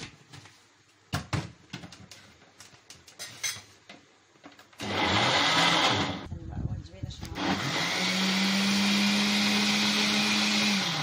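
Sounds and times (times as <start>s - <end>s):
electric blender running: 4.8s - 6.3s, 7.4s - 11.0s.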